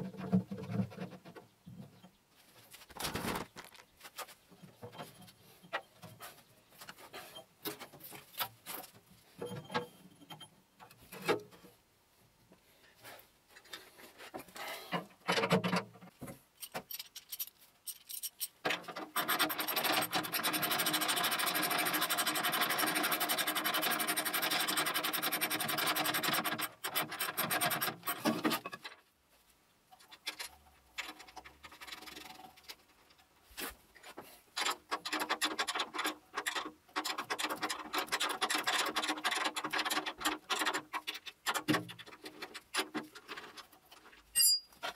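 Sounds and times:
tools clicking and knocking: 0:14.9 - 0:29.0, 0:34.5 - 0:44.9.

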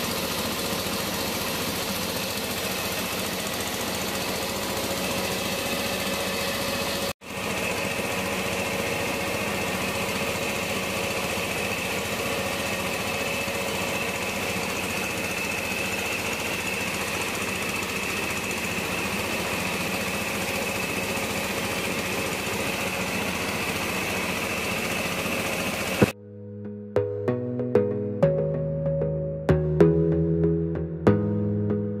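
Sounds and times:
constant high whine: 0:00.0 - 0:26.2
engine-driven rice mill droning: 0:00.0 - 0:26.2
music: 0:26.2 - 0:32.0.

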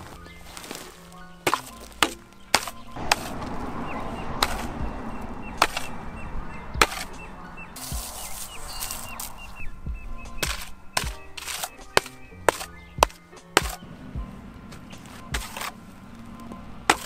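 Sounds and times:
shovel blade hitting packed dirt: 0:00.0 - 0:03.6, 0:04.4 - 0:04.8, 0:05.6 - 0:06.0, 0:06.8 - 0:07.2, 0:07.8 - 0:09.4, 0:10.3 - 0:13.9, 0:14.7 - 0:17.0
dirt scraping: 0:00.0 - 0:17.0.

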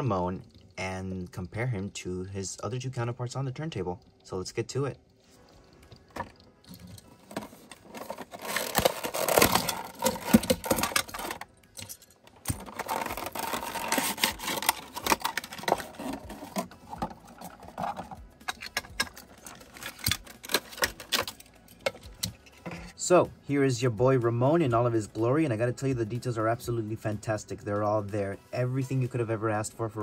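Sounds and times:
plastic packaging crinkling: 0:06.0 - 0:11.6, 0:12.3 - 0:21.9.

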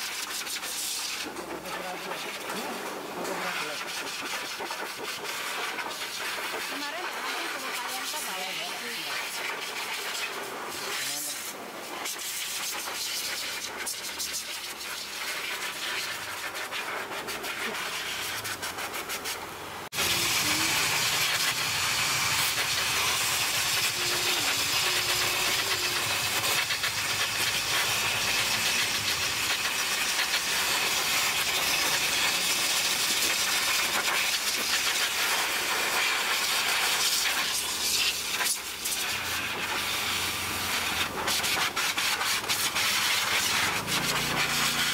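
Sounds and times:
blow dryers rushing air: 0:19.9 - 0:33.7, 0:38.8 - 0:44.9.

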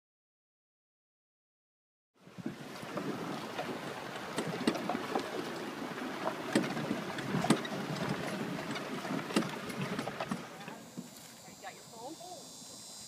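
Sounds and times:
cart rattling over bumps: 0:02.4 - 0:11.2.

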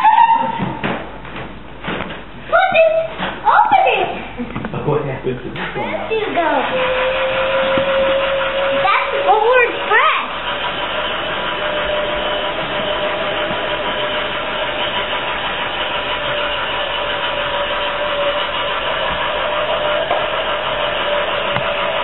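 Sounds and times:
toy train motor whine: 0:05.6 - 0:22.0.

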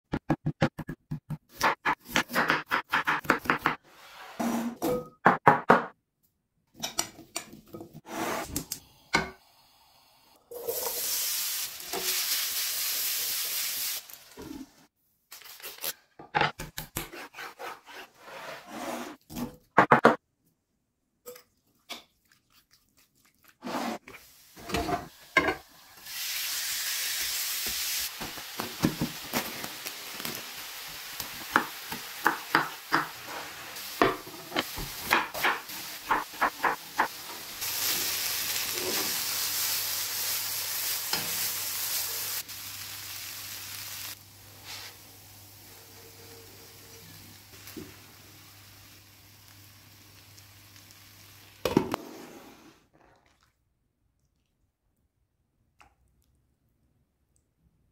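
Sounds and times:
food sizzling in hot oil: 0:09.4 - 0:14.8, 0:24.2 - 0:51.8.

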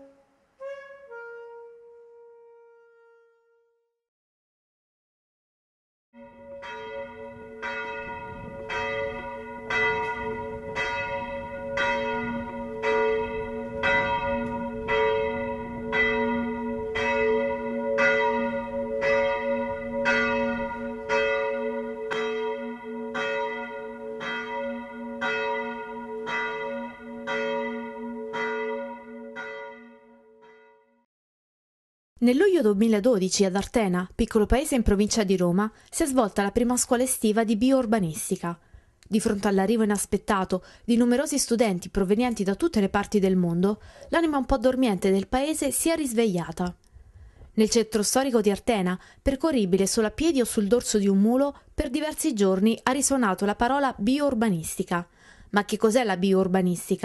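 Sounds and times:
church bell tolling: 0:06.2 - 0:31.0.

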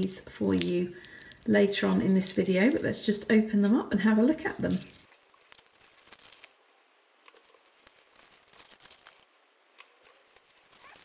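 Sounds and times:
paper wrappers tearing and crinkling: 0:00.0 - 0:03.0, 0:04.4 - 0:11.0.

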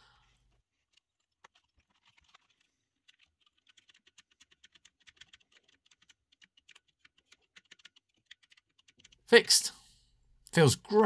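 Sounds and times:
keyboard keys clicking: 0:01.6 - 0:09.2.

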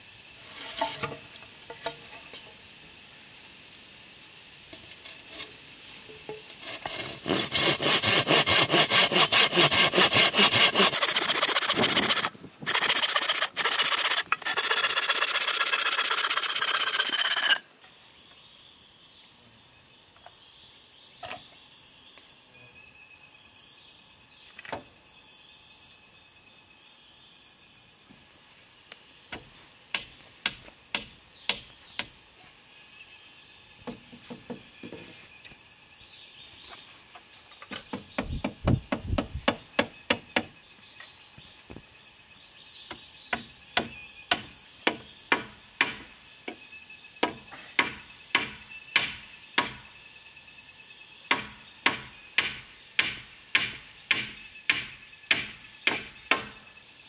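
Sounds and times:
insects shrilling: 0:00.0 - 0:19.0
machete chopping wooden pole: 0:29.3 - 0:32.2, 0:43.3 - 0:46.1, 0:47.2 - 0:49.8, 0:51.3 - 0:56.6.

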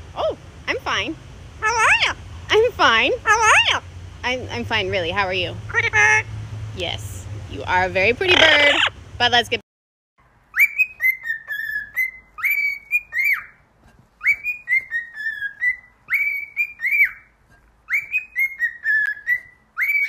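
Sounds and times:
cockatiel whistling a tune: 0:10.5 - 0:13.6, 0:14.2 - 0:17.3, 0:17.9 - 0:20.0.

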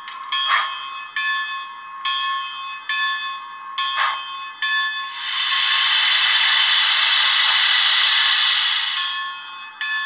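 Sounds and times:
locomotive bell ringing: 0:00.0 - 0:05.7, 0:06.5 - 0:10.0
steam hiss: 0:05.1 - 0:09.4.

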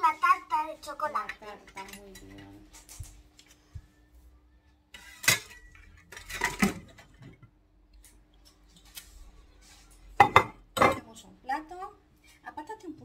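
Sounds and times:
ceramic dishes clattering: 0:05.0 - 0:07.5, 0:10.2 - 0:11.1.

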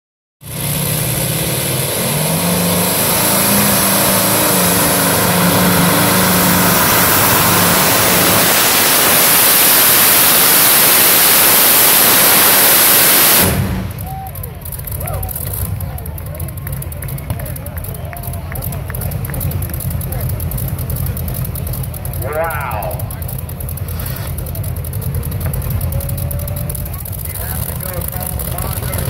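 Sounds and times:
radial aircraft engine at full power: 0:04.3 - 0:13.8.

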